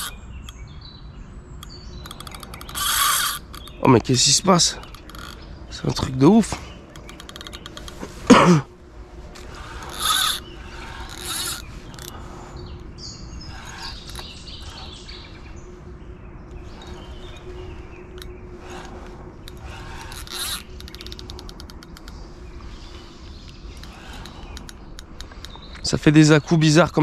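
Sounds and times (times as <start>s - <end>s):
fishing reel clicker ratcheting: 2.0s - 3.7s, 9.6s - 12.2s, 19.5s - 22.1s.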